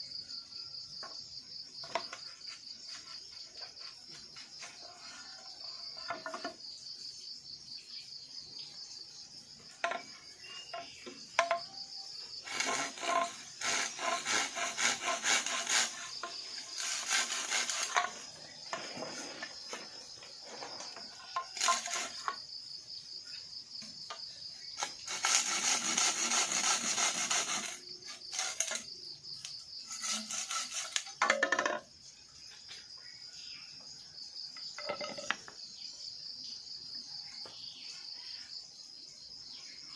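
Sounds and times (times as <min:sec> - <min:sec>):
insects chirring: 0:00.0 - 0:39.9
blade scraping bamboo: 0:12.4 - 0:22.4, 0:24.8 - 0:29.0, 0:29.8 - 0:31.8.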